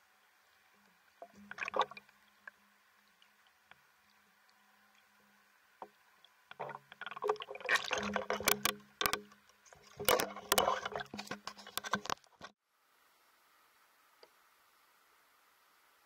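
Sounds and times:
underwater churning and bubbling: 0.1 - 12.2
sharp clicks and knocks: 6.5 - 12.6.

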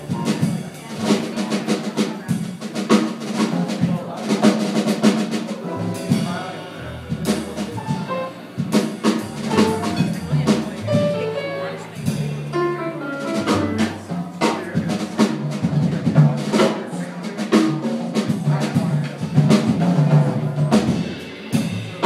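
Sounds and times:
jazz guitar: 0.0 - 3.9, 4.5 - 16.7
drum kit playing busy beat: 0.0 - 22.0.

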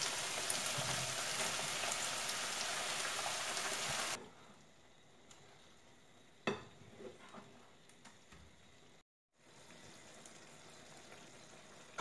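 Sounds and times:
greens hissing in a pan: 0.0 - 4.2.

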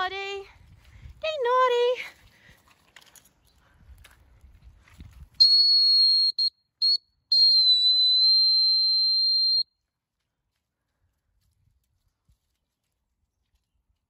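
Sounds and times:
dog whistle blasts: 5.4 - 9.6.

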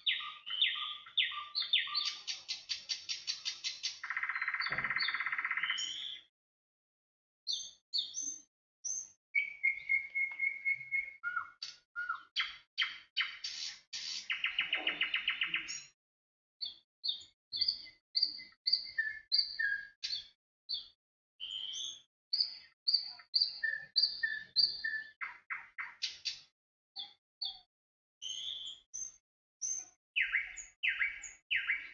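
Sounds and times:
songbird chirping and whistling: 0.0 - 6.3, 7.5 - 16.0, 16.6 - 26.4, 27.0 - 31.9.

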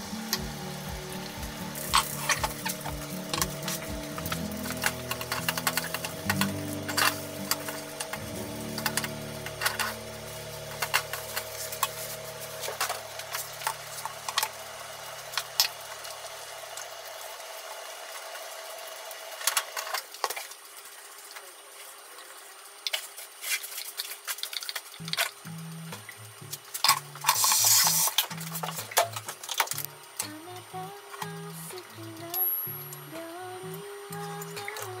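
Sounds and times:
low hum: 0.0 - 16.8, 25.0 - 35.0
food cooking in pan: 0.0 - 35.0.

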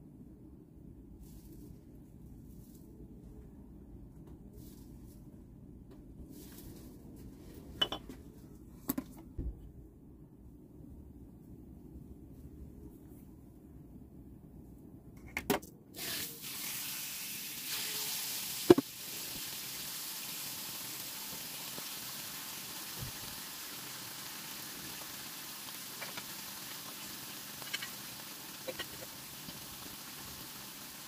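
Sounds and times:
chicken sizzling in grill pan: 16.0 - 31.0.

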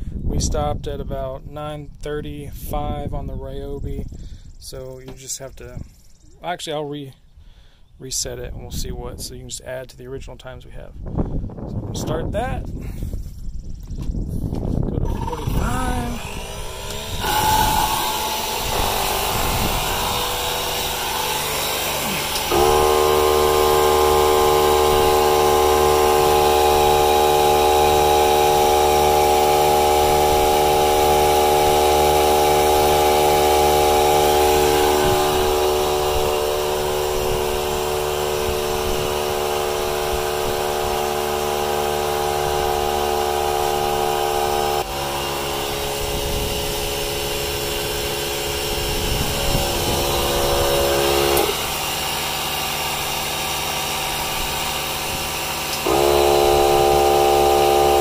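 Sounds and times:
motor and pump drone: 12.8 - 58.0
high whine: 14.8 - 52.2, 54.0 - 58.0.

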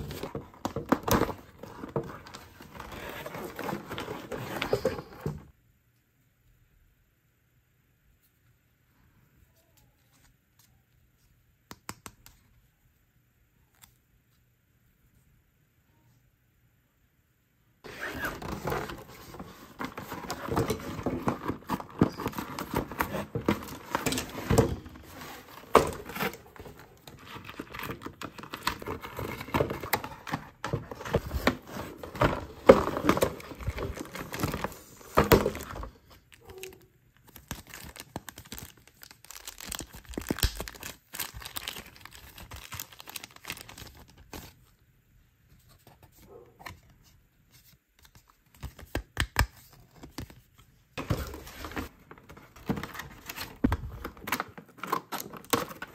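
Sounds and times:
packaging crinkling and tearing: 17.9 - 44.5.

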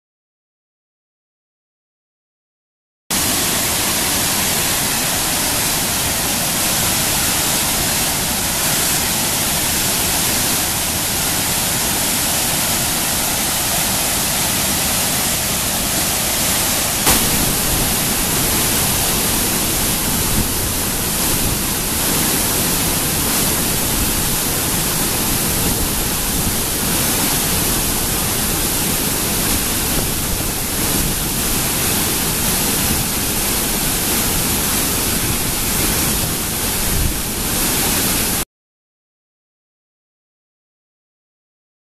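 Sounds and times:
waterfall rushing: 3.1 - 38.4.

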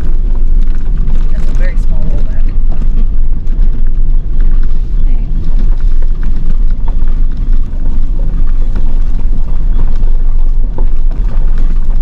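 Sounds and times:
truck engine and tyres rumbling: 0.0 - 12.0.

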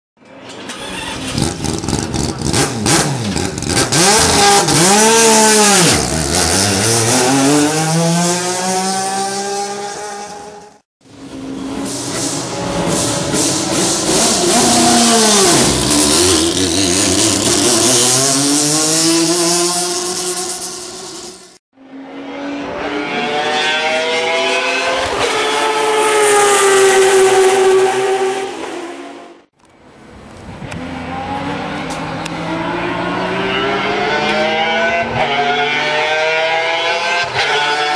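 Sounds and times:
race car engine passing by: 30.7 - 37.9.

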